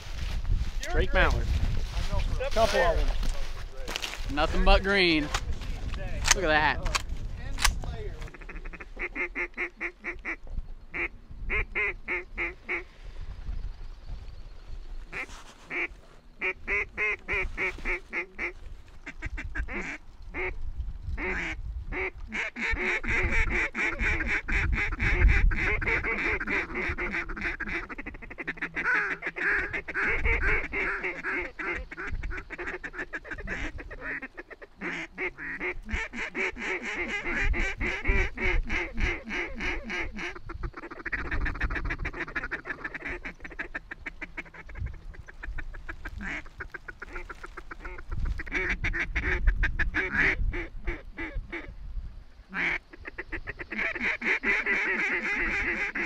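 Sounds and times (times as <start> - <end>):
flock of ducks calling: 8.2 - 12.9, 15.0 - 20.6, 21.2 - 51.7, 52.5 - 56.0.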